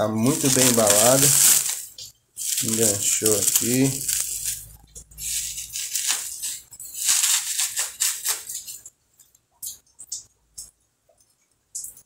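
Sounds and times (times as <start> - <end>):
bubble wrap crinkling: 0.0 - 8.8.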